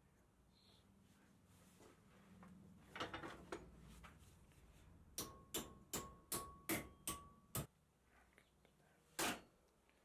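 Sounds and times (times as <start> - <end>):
hammer striking sheet steel: 5.2 - 7.7.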